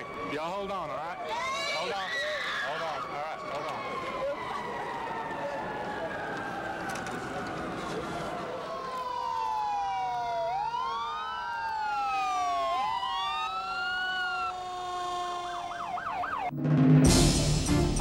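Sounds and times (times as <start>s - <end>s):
emergency vehicle sirens wailing: 0.0s - 16.6s
music: 16.5s - 18.0s.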